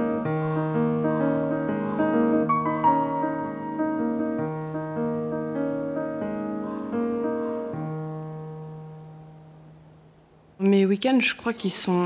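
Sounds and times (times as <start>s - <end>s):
slow piano music: 0.0s - 10.6s.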